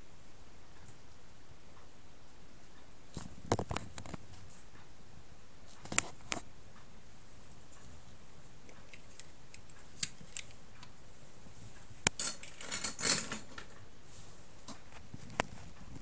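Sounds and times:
steady low hiss: 0:00.0 - 0:16.0
rustling scrape: 0:11.4 - 0:16.0.

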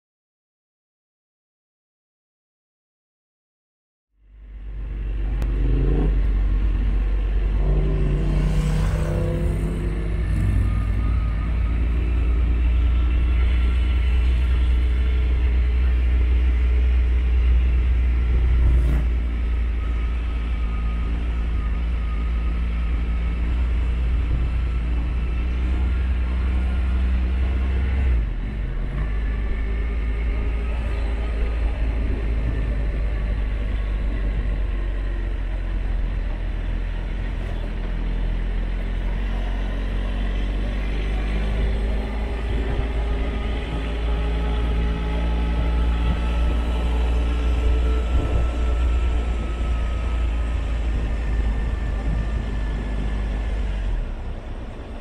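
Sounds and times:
wind rumble on microphone: 0:22.9 - 0:39.6, 0:40.5 - 0:55.0.

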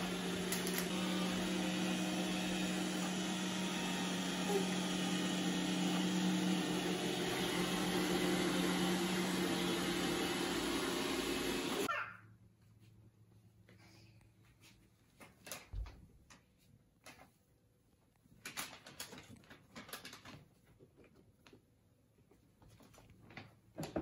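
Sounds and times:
robot vacuum humming: 0:00.0 - 0:11.9.

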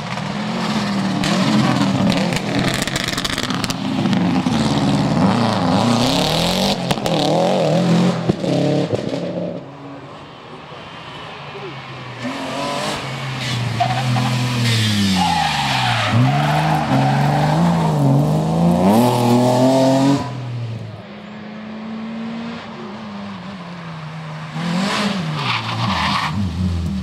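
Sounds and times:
rally car engine revving: 0:00.0 - 0:09.7, 0:12.1 - 0:21.0, 0:24.4 - 0:27.0
second rally car revving: 0:00.0 - 0:10.1, 0:11.6 - 0:27.0.

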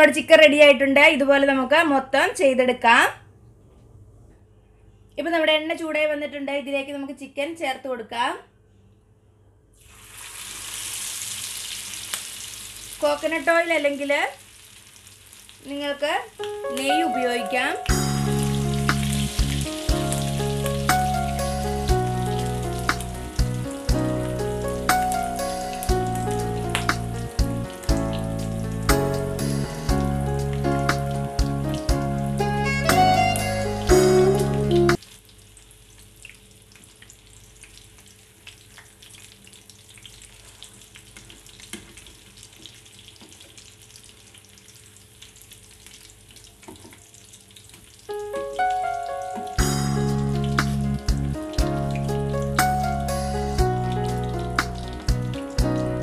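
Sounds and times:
chicken frying in hot oil: 0:09.8 - 0:16.6, 0:17.9 - 0:32.3, 0:34.5 - 0:56.0
background music with beat: 0:16.6 - 0:35.0, 0:48.6 - 0:56.0.

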